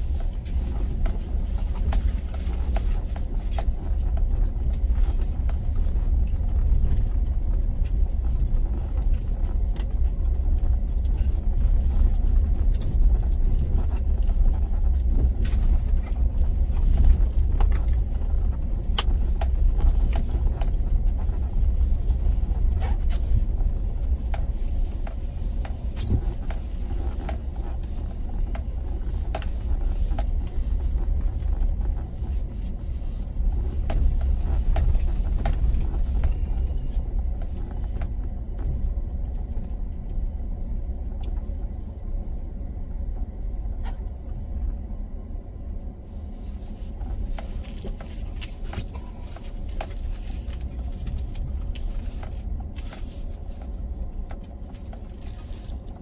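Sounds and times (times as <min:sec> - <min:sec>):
small clicks and rattles: 0:00.0 - 0:40.2
road and engine rumble: 0:00.0 - 0:56.0.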